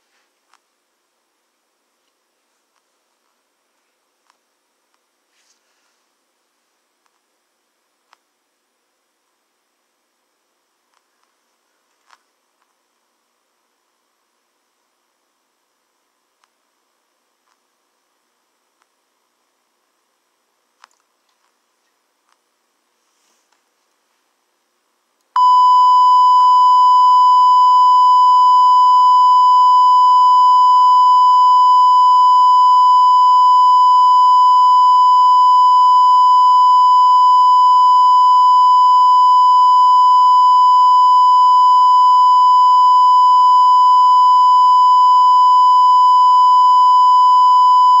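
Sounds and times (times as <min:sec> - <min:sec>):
steady electronic test tone beep: 0:25.4 - 0:48.0.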